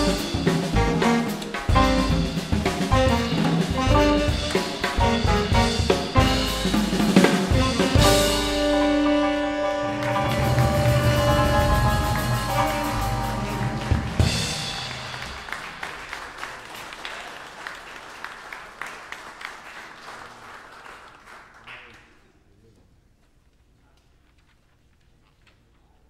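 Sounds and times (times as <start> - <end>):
jazz band closing chord: 0.0 - 15.6
drum hits: 0.0 - 15.8
audience applause: 8.8 - 22.2.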